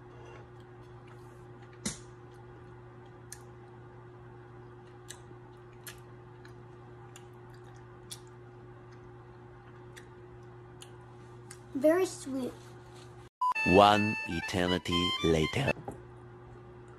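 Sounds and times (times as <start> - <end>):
steady low hum: 0.0 - 16.9
sticky chewing clicks: 4.8 - 11.6.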